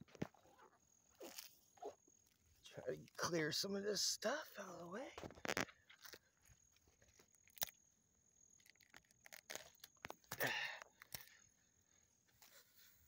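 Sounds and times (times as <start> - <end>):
weeds snapping: 7.0 - 7.8, 8.6 - 11.4.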